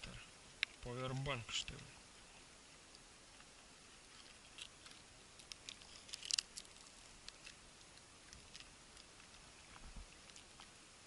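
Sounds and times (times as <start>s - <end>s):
casing clicking and crackling: 4.1s - 10.7s.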